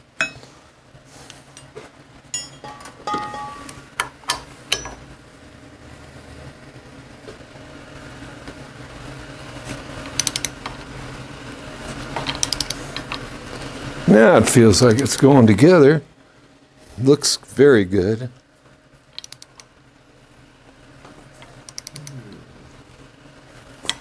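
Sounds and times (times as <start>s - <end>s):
metal tools clinking: 2.4s - 3.7s
ratchet clicking: 10.2s - 10.5s, 12.3s - 12.8s, 19.2s - 19.7s.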